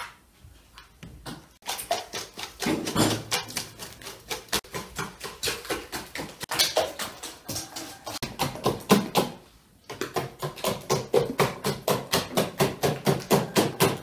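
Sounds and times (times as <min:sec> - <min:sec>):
whisk beating in metal bowl: 0:01.6 - 0:09.3.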